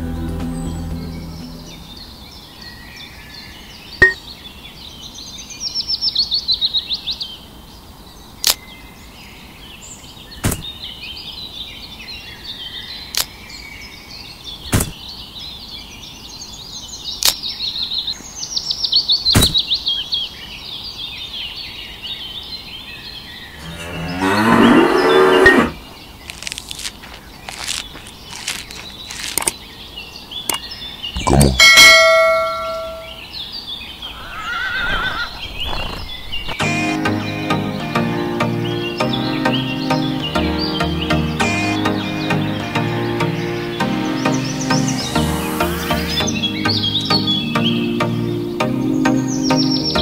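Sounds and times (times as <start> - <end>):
small birds chirping: 0.4 - 50.0
cow mooing: 23.6 - 25.8.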